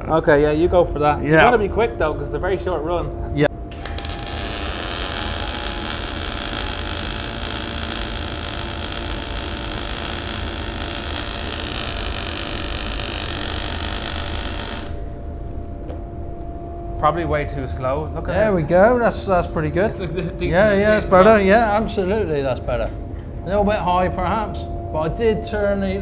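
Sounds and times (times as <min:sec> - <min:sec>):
welding arc crackling: 0:03.7 - 0:15.3.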